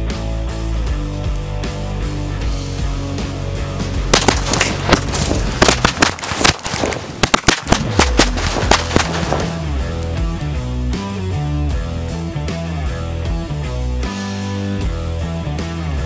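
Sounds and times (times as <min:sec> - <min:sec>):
rock music: 0:00.0 - 0:06.0, 0:08.0 - 0:16.0
firecrackers banging: 0:04.1 - 0:10.1.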